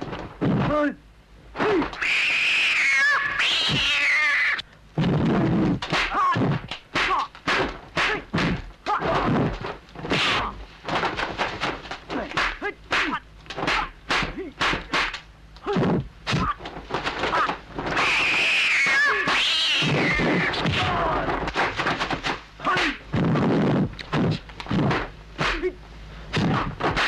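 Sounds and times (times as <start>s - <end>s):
high-pitched wavering cry: 2.0s - 4.6s, 18.0s - 20.5s
punch and block impacts: 5.0s - 18.3s, 19.9s - 23.4s, 24.2s - 25.7s, 26.3s - 27.0s
short shouts: 17.3s - 21.4s.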